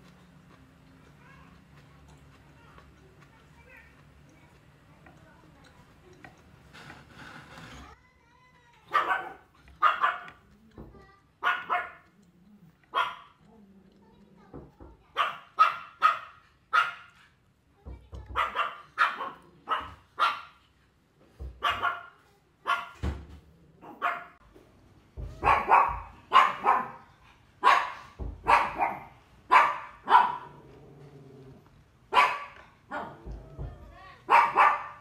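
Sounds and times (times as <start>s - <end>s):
dog barking: 8.9s - 10.4s, 11.4s - 12.2s, 12.8s - 13.5s, 15.1s - 17.2s, 18.3s - 20.6s, 21.6s - 23.0s, 23.8s - 24.4s, 25.3s - 30.6s, 32.1s - 33.4s, 34.2s - 35.0s.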